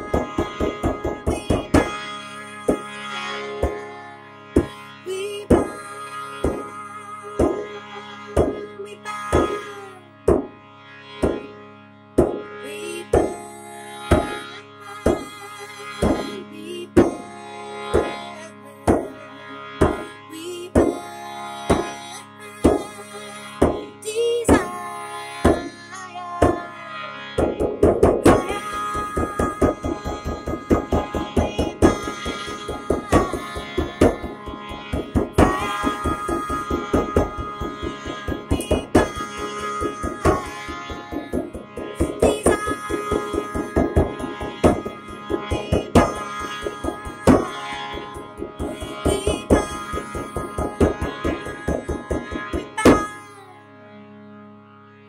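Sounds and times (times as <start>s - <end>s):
frame drum beaten by hand: 0.0s - 2.0s, 27.4s - 53.1s
harmonium drone: 0.0s - 55.0s.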